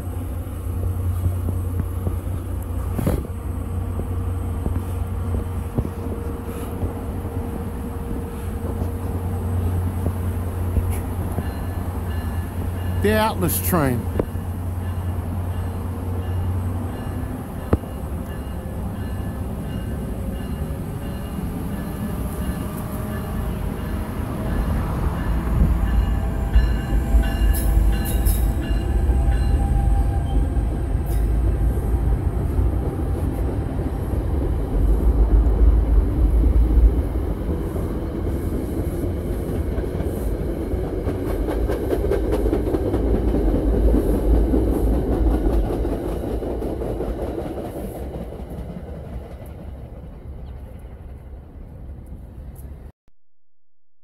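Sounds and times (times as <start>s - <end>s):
train rumble: 0.0s - 52.9s
wheels clattering on rails: 38.3s - 51.3s.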